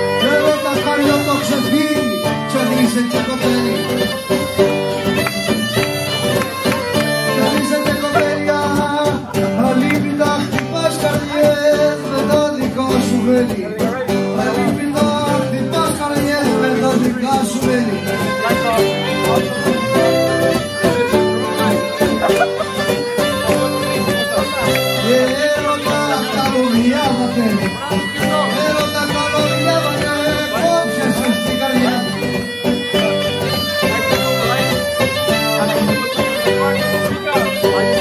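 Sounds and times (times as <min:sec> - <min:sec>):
bagpipe playing folk tune: 0:00.0 - 0:08.4, 0:17.6 - 0:38.0
plucked lute: 0:00.0 - 0:38.0
strummed acoustic guitar: 0:00.0 - 0:38.0.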